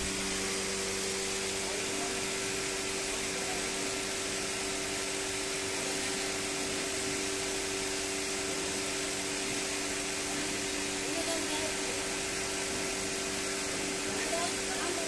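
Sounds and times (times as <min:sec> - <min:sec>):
machine hum and whir: 0:00.0 - 0:15.0.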